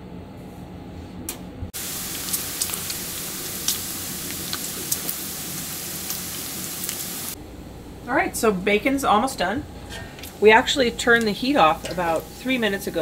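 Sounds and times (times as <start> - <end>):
bacon sizzling in a skillet: 1.8 - 7.4, 10.2 - 13.0
fat popping and crackling: 1.8 - 7.4.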